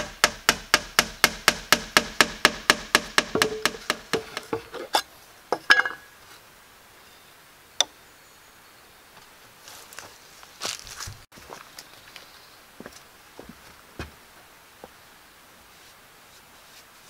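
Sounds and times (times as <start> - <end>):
hammer tapping on wood: 0.0 - 4.7
knocks: 0.0 - 4.7.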